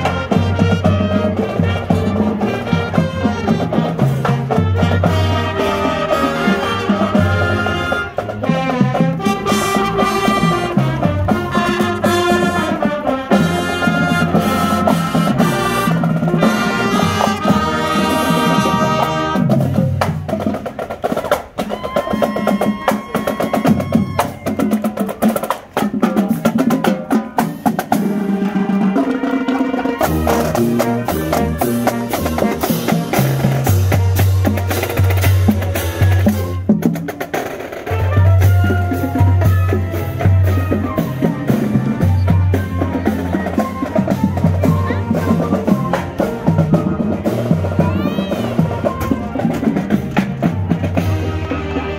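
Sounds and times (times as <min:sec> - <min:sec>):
marching band winds playing: 0:00.0 - 0:51.9
snare drum strokes: 0:00.0 - 0:51.9.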